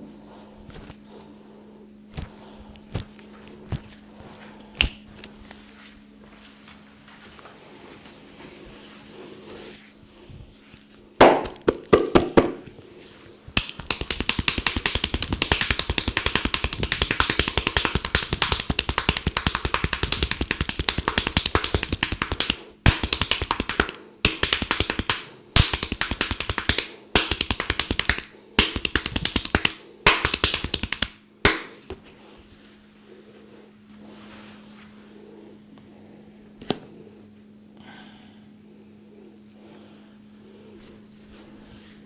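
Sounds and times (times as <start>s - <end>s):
hands slapping during massage: 2.1s - 4.0s, 11.2s - 12.7s, 13.6s - 32.1s.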